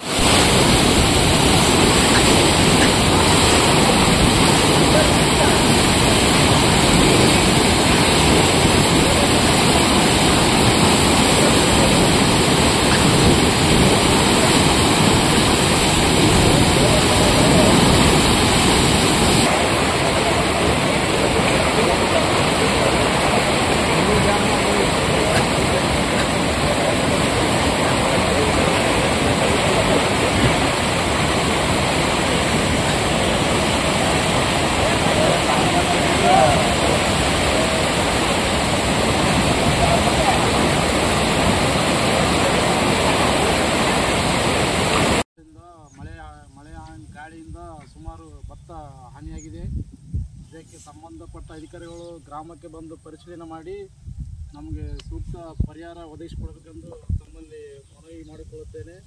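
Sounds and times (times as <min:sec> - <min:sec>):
floodwater rushing over a weir: 0:00.0 - 0:45.2.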